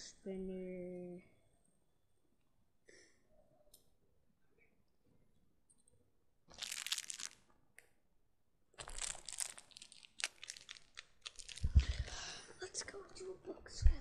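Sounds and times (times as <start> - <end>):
packaging crinkling: 6.5 - 7.5, 8.8 - 12.1.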